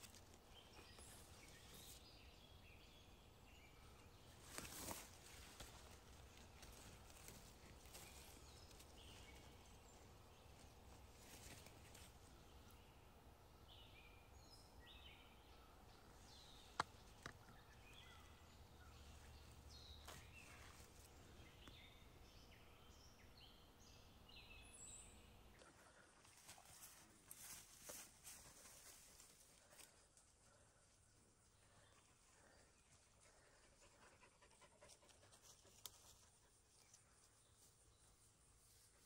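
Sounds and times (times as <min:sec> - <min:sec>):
dry leaves rustling: 0:04.4 - 0:10.0.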